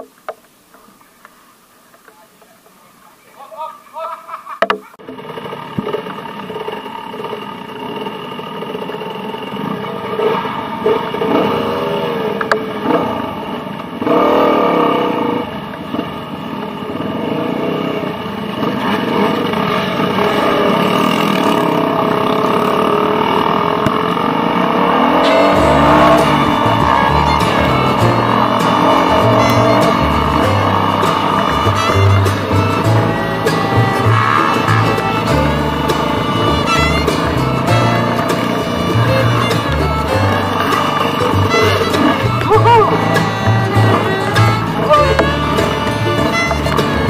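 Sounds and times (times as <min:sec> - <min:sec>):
dirt bike engines revving: 0:05.0 - 0:47.0
background music: 0:25.2 - 0:47.0.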